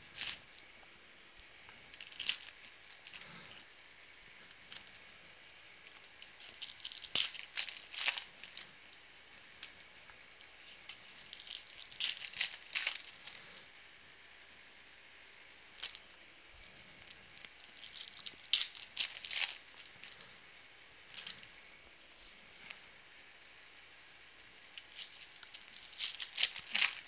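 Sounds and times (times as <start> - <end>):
foil wrappers tearing and crinkling: 0.0 - 0.6, 1.9 - 3.4, 5.9 - 8.7, 10.6 - 13.5, 17.4 - 20.2, 24.8 - 27.0.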